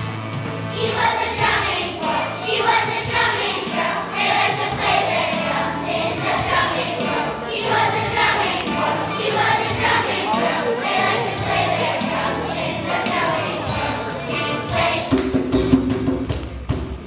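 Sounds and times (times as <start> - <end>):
musical accompaniment with bass line: 0.0 - 17.0
children's choir singing: 0.7 - 15.8.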